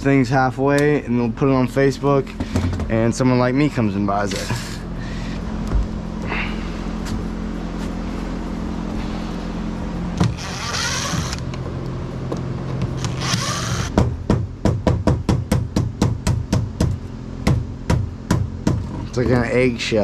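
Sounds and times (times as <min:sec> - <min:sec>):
steady low hum: 0:00.0 - 0:20.0
cordless drill whirring: 0:10.2 - 0:11.5, 0:13.0 - 0:13.9.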